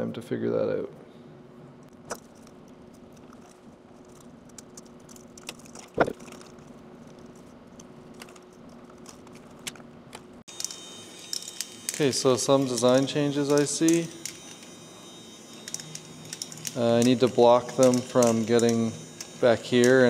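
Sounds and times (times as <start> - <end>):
wires and plastic rattling: 1.9 - 14.8, 15.5 - 20.0.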